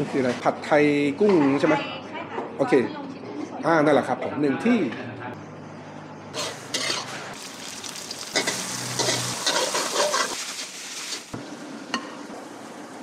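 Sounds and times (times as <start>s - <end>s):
metal utensils scraping a wok: 6.3s - 7.4s, 8.2s - 11.2s
noodles sizzling in a wok: 6.4s - 13.0s.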